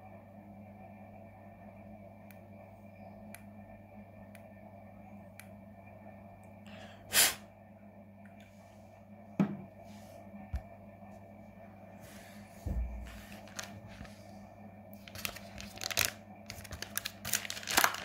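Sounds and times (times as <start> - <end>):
steady low hum: 0.0 - 18.0
e-cigarette knocking on table: 9.4 - 9.7.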